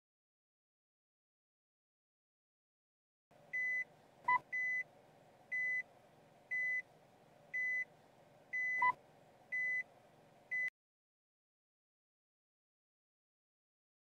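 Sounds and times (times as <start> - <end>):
faint steady hum: 3.3 - 10.7
car warning beeps: 3.5 - 4.9, 5.5 - 5.9, 6.5 - 6.9, 7.5 - 7.9, 8.5 - 9.9, 10.5 - 10.7.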